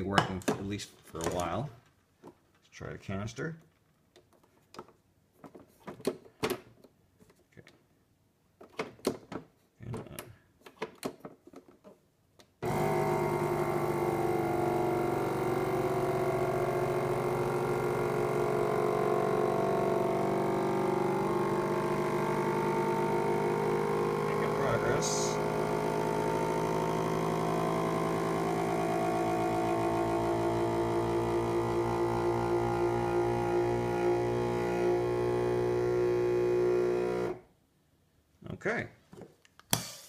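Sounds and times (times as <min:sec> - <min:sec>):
vacuum sealer pump humming: 0:12.6 - 0:37.5.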